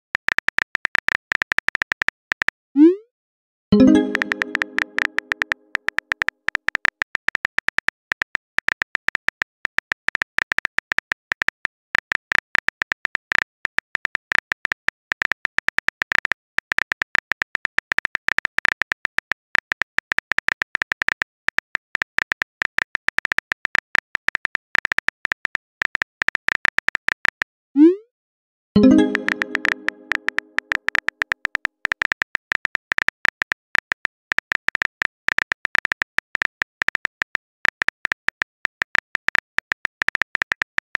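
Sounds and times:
pitched chime: 3.8 - 5.5, 28.8 - 30.6.

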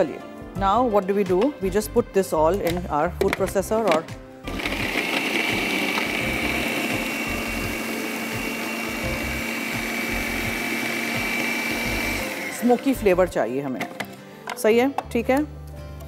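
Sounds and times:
food processor motor whining: 4.5 - 13.2.

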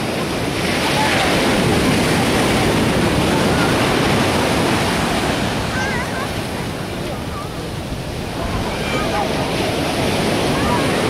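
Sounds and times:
ocean surf breaking: 0.0 - 11.0
faint distant voices: 5.7 - 11.0.

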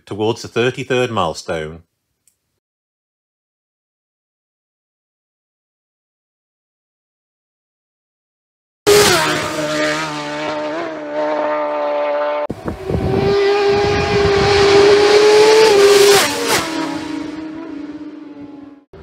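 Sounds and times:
racing motorcycle engine screaming: 8.9 - 18.8
motorcycle passing at speed: 8.9 - 19.0.

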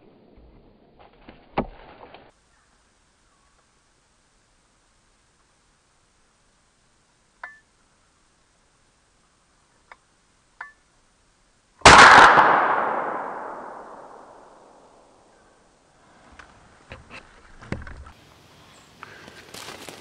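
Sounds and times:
rifle shot echoing: 11.8 - 15.3.

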